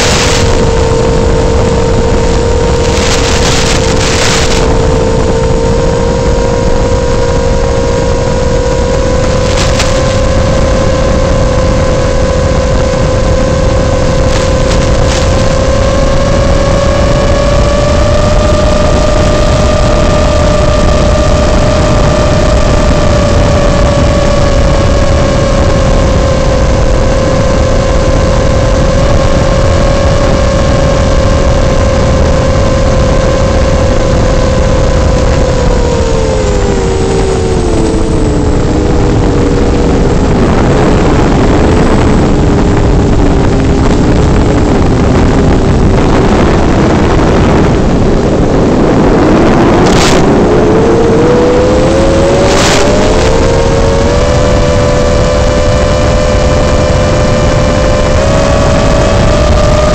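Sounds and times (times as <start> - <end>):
quadcopter motors whining: 0.0 - 43.7.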